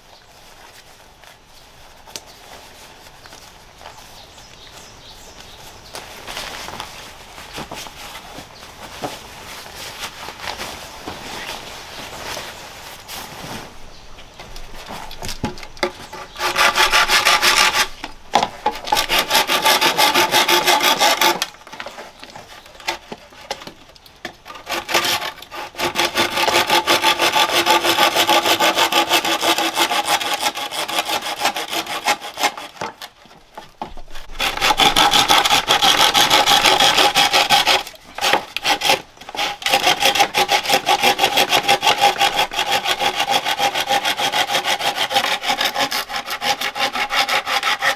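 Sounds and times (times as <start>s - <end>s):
hand saw cutting wood: 14.8s - 47.9s.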